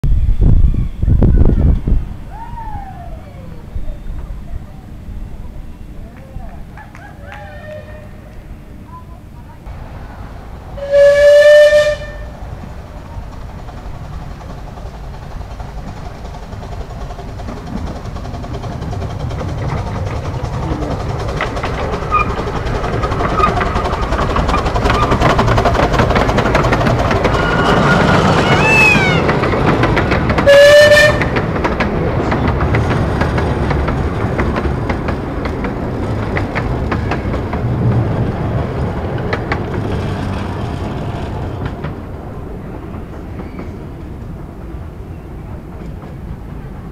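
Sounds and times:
wheels clattering over track: 9.7s - 46.9s
steam whistle blast: 10.8s - 12.3s, 30.4s - 31.3s.

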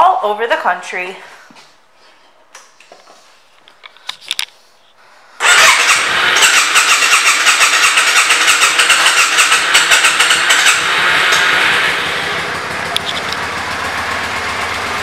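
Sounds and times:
motorcycle engine running: 5.4s - 15.0s.

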